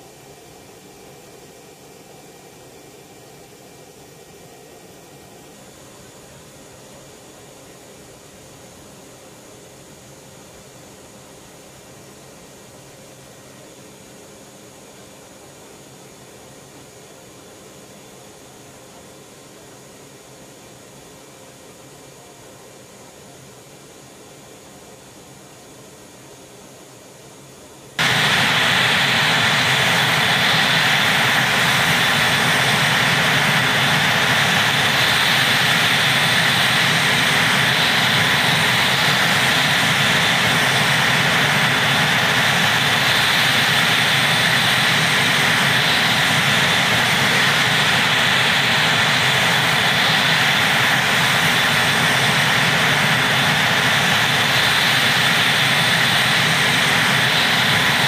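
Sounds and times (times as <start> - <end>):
helicopter engines whining: 28.0 - 58.0.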